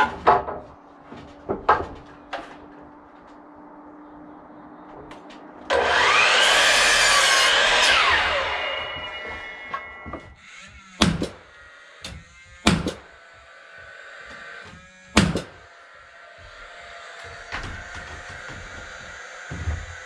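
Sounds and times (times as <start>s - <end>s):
sharp wooden knocks: 0.0s - 0.8s, 11.0s - 13.1s, 14.3s - 15.7s, 17.2s - 20.0s
power saw cutting wood: 5.7s - 20.0s.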